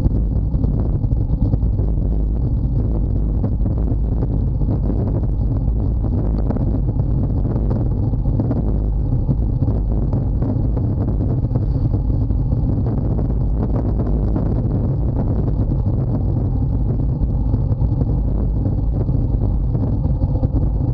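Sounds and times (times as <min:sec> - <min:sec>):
wind buffeting microphone: 0:00.0 - 0:20.9.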